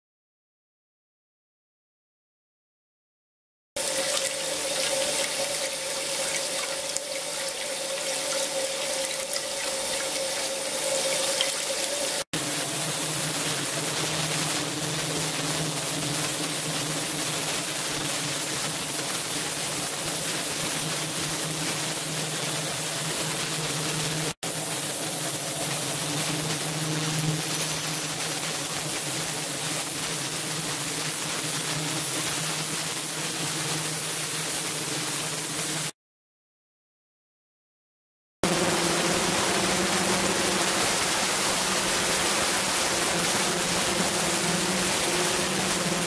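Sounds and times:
water churning and splashing: 3.8s - 26.7s
steady machine hum: 3.8s - 34.3s, 38.4s - 46.0s.

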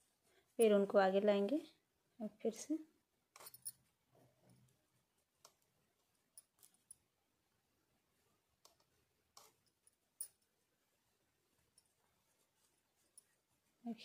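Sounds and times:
knitting needles clicking: 8.6s - 10.5s.

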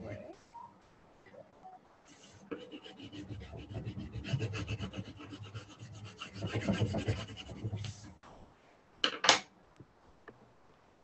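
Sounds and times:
colored pencil scratching on paper: 2.1s - 8.2s.

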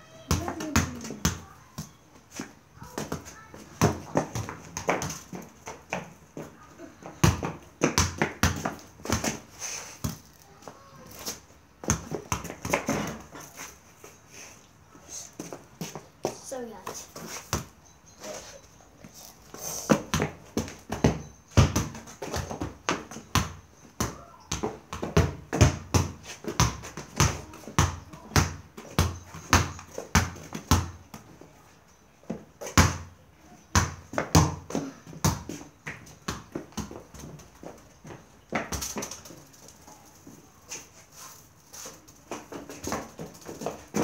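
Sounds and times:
football thudding and bouncing: 3.0s - 6.2s, 7.1s - 9.4s, 11.8s - 13.2s, 19.9s - 31.1s, 33.7s - 39.2s, 42.3s - 44.0s.

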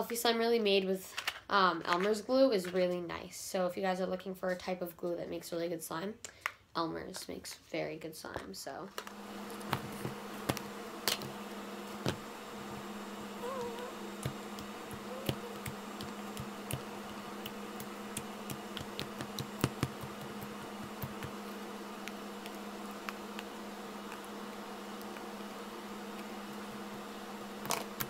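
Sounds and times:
background hum: 0.0s - 28.0s
small clicks and pops: 13.7s - 24.3s.

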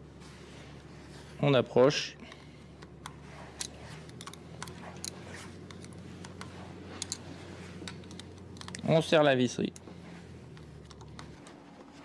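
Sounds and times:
small metallic clicks: 2.3s - 7.2s, 7.8s - 8.9s.

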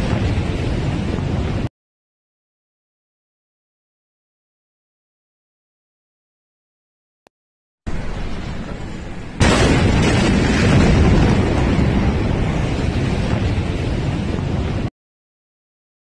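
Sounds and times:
loud explosion blast: 0.0s - 1.7s, 7.9s - 14.9s
steady rushing noise: 0.0s - 1.7s, 7.9s - 14.9s.

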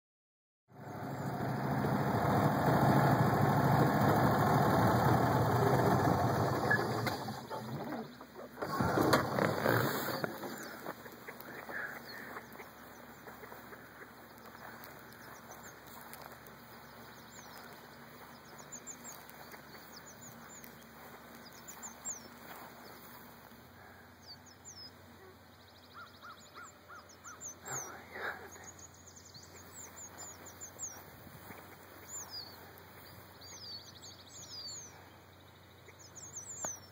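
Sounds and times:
chicks peeping: 6.6s - 23.4s, 26.4s - 34.9s.

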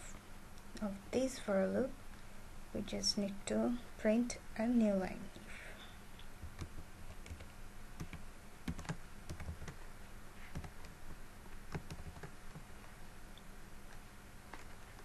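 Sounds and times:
computer keyboard typing: 6.4s - 9.8s, 10.5s - 11.0s, 11.7s - 12.6s.

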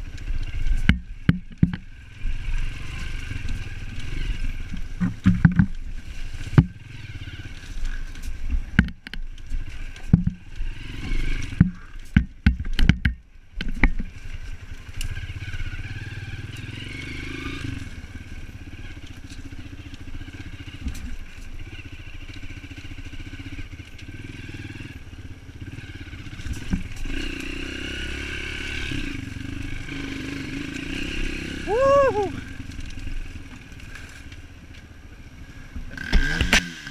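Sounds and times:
dirt bike engine running: 0.0s - 36.9s
knocks and clatters from bumps: 0.7s - 1.9s, 4.7s - 5.9s, 8.4s - 10.4s, 11.4s - 14.2s.

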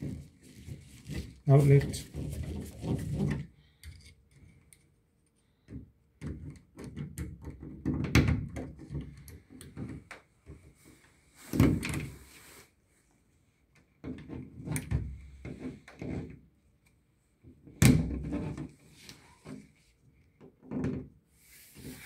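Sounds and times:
screwdriver clicks and scrapes: 3.8s - 4.9s.

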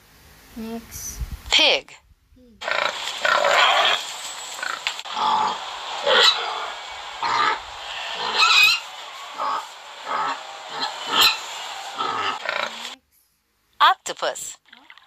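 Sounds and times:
recorded pig oinks: 2.6s - 4.0s, 12.0s - 13.0s.

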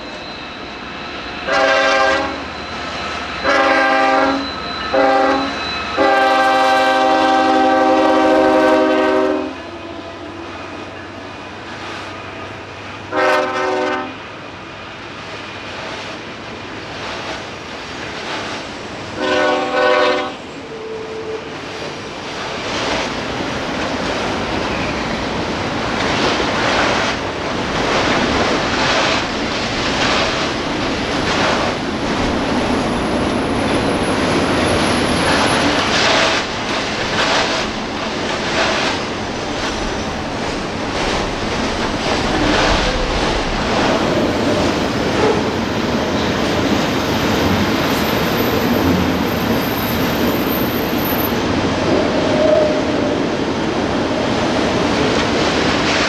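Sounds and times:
train cars rumbling past: 0.0s - 56.0s
train air horn blast: 1.5s - 2.5s, 3.4s - 10.8s, 13.1s - 14.2s, 19.2s - 21.5s.

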